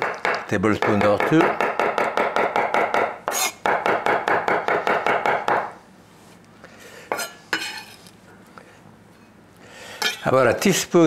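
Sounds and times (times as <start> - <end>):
knife chopping on wooden board: 0.0 - 5.7.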